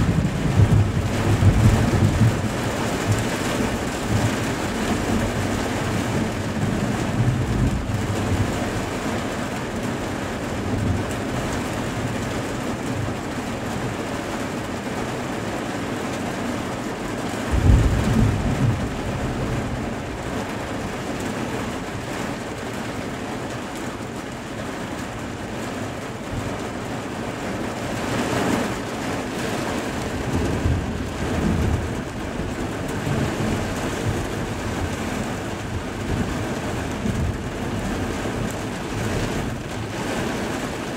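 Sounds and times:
thunder rumbling: 0:00.0 - 0:09.0, 0:17.5 - 0:22.1, 0:30.0 - 0:40.9
steady rain: 0:00.0 - 0:40.9.

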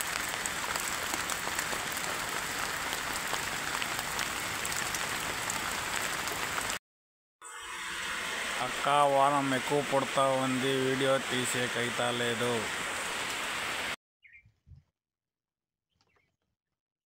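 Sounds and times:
heavy rain hiss: 0:00.0 - 0:06.8, 0:08.2 - 0:14.0.

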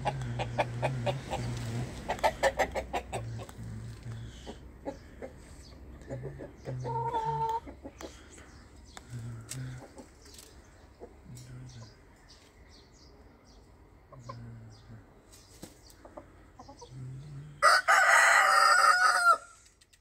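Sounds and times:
chickens clucking softly: 0:00.0 - 0:12.6, 0:13.6 - 0:17.6
rooster crowing: 0:17.6 - 0:19.6.

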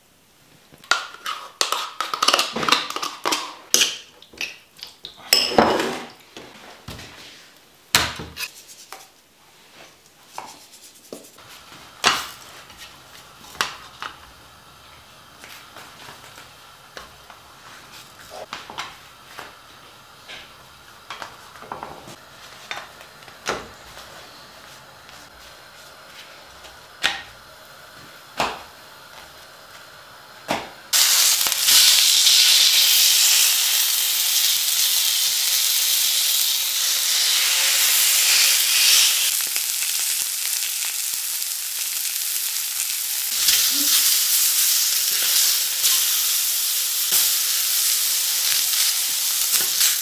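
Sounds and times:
faint steady hiss: 0:00.0 - 0:50.0
dishes and utensils clinking: 0:05.2 - 0:06.2.

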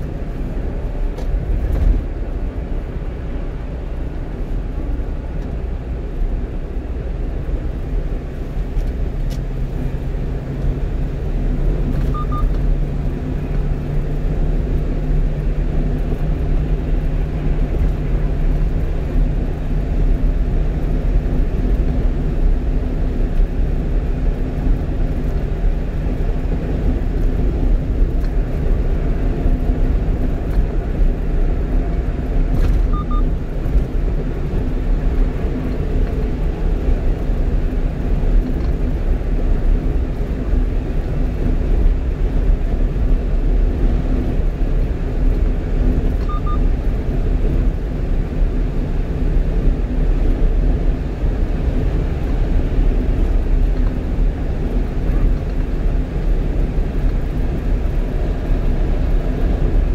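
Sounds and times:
truck engine and road noise: 0:00.0 - 0:59.9
short double beep: 0:12.0 - 0:12.6, 0:32.9 - 0:33.3, 0:46.2 - 0:46.6.

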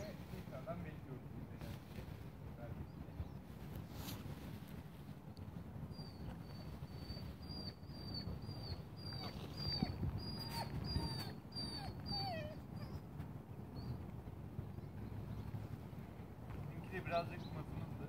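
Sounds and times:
puppy whimpering: 0:05.9 - 0:13.1.

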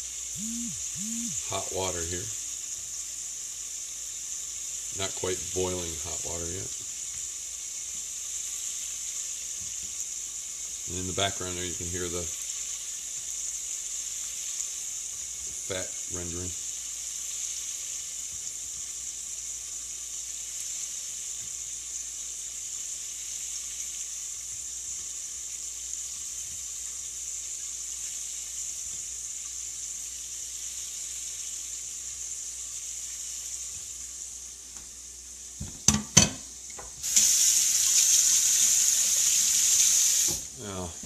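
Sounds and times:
pork fat sizzling in a pot: 0:00.0 - 0:41.0.

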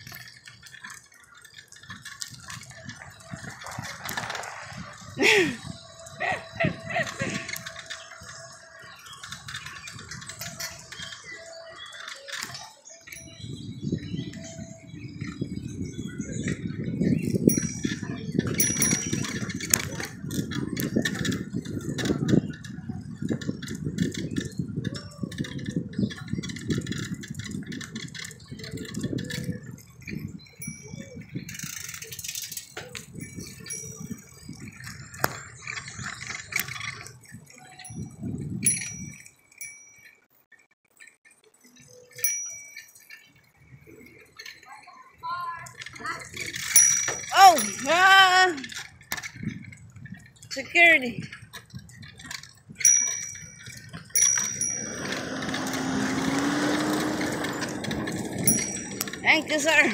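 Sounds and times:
bicycle bell dings: 0:17.3 - 0:19.8, 0:30.5 - 0:31.7, 0:33.0 - 0:34.5, 0:37.7 - 0:40.2, 0:42.1 - 0:43.2, 0:46.6 - 0:48.2, 0:52.8 - 0:59.9.

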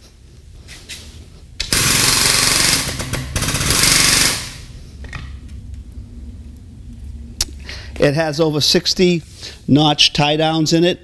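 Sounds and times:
air pump hissing and pulsing: 0:01.7 - 0:04.8.

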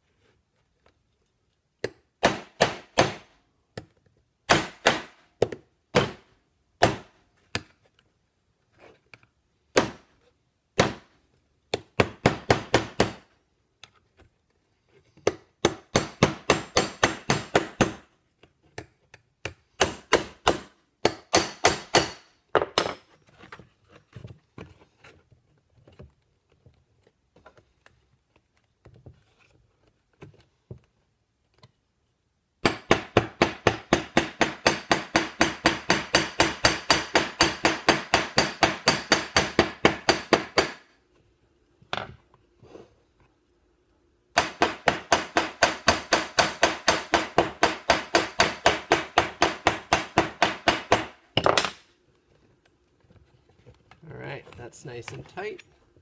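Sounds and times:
hammer striking rivets on metal: 0:15.6 - 0:18.0, 0:19.8 - 0:23.0, 0:32.6 - 0:40.9, 0:44.4 - 0:51.8.

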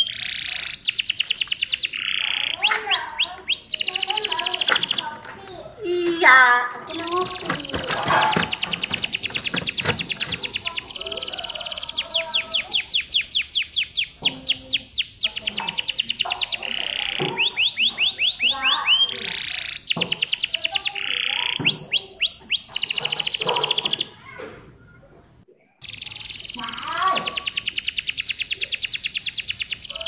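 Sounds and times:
canary singing trills: 0:00.0 - 0:24.4, 0:25.8 - 0:30.0.

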